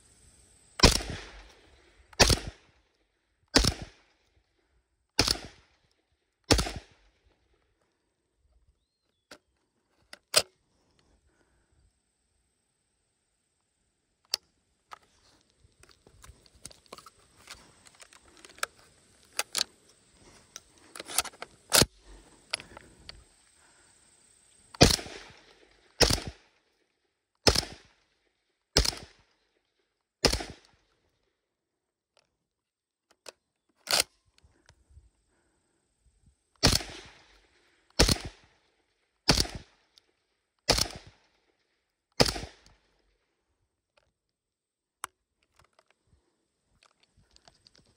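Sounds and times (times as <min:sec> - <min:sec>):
shotgun shots: 0:00.8 - 0:01.6, 0:02.2 - 0:02.7, 0:03.5 - 0:04.0, 0:05.2 - 0:05.7, 0:06.5 - 0:07.0, 0:24.8 - 0:26.5, 0:27.4 - 0:27.9, 0:28.8 - 0:29.2, 0:30.2 - 0:30.7, 0:36.6 - 0:37.3, 0:38.0 - 0:38.5, 0:39.3 - 0:39.7, 0:40.7 - 0:41.2, 0:42.2 - 0:42.6.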